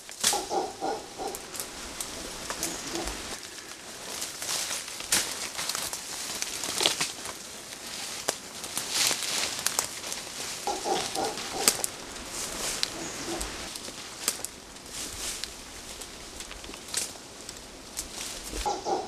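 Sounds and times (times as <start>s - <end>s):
footsteps through dry leaves: 0.0s - 19.0s.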